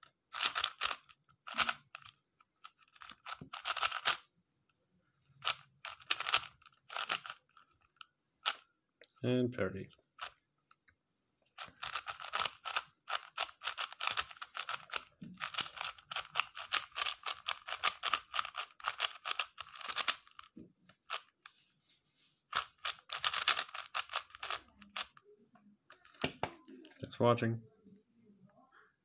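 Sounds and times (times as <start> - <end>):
speed cube plastic clicks: 0.3 - 4.3, 5.4 - 8.6, 11.6 - 21.4, 22.5 - 25.2, 25.9 - 26.4.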